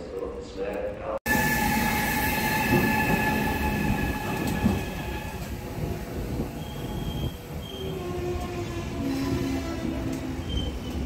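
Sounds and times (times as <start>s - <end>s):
train wheels rumbling on rails: 1.3s - 11.0s
high squeal of wheels or brakes: 6.6s - 8.2s, 10.4s - 11.0s.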